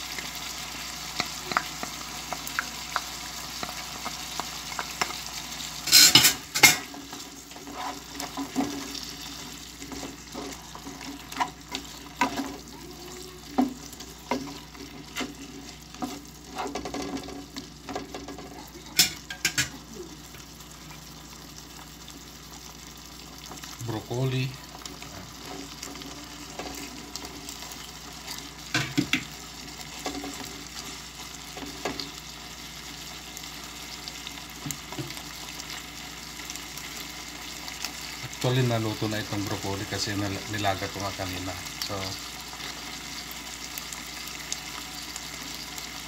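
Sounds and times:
chicken sizzling in a pot: 0.0 - 46.0
wooden spatula scraping a pot: 6.8 - 12.7, 13.5 - 17.6.

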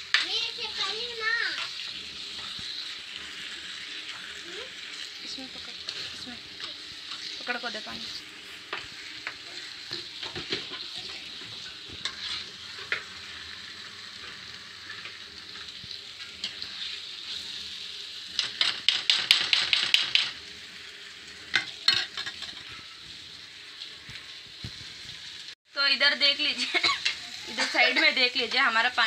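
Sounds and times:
spatula scraping a pan: 0.0 - 13.6, 14.2 - 17.8, 26.7 - 28.7
chicken sizzling in a frying pan: 0.0 - 29.0.

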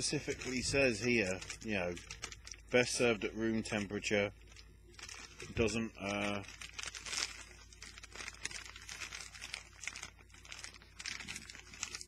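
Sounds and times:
plastic snack packet crinkling: 0.0 - 12.0.

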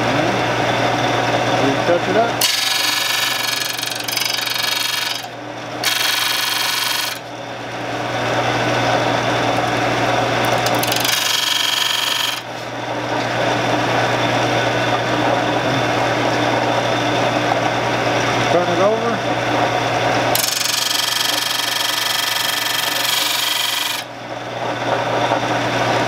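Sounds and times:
sharpening machine humming: 0.0 - 18.4, 19.4 - 25.4
tool grinding on disc: 2.1 - 7.3, 8.8 - 12.8, 20.2 - 24.2.

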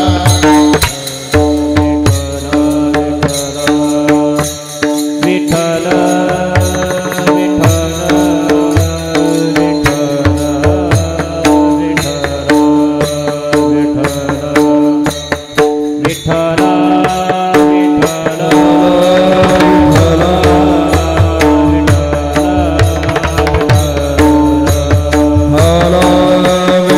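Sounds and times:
small hand cymbals: 0.0 - 26.9
barrel drum strokes: 18.4 - 26.2.

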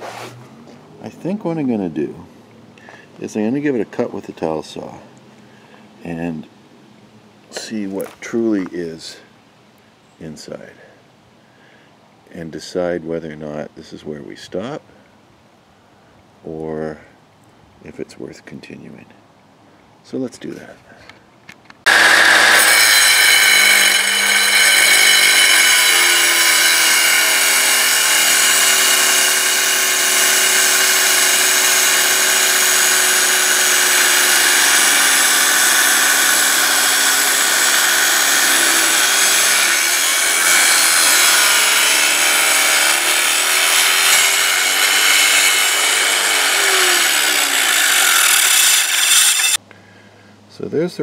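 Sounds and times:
wet tile saw cutting rock: 21.9 - 49.6.

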